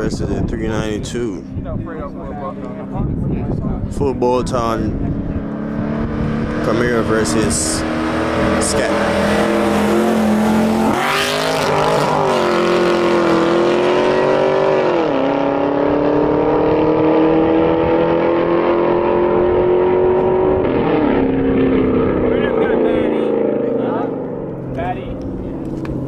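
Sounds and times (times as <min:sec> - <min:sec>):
car engines accelerating hard: 0:00.0 - 0:26.0.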